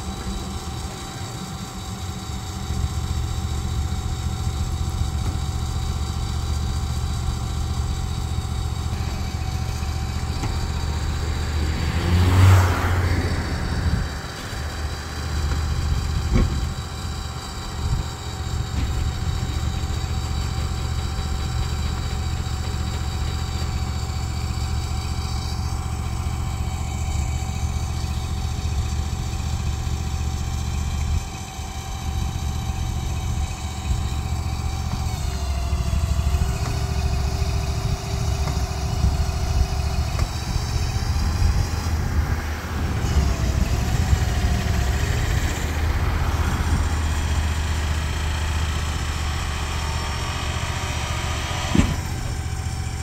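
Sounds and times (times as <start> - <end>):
shed mover engine running: 0.0 - 53.0.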